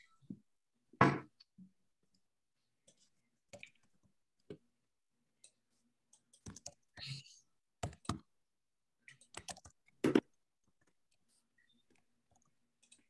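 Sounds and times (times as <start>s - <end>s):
keyboard and mouse clicks: 5.4s - 7.1s, 7.8s - 8.3s, 9.0s - 13.0s.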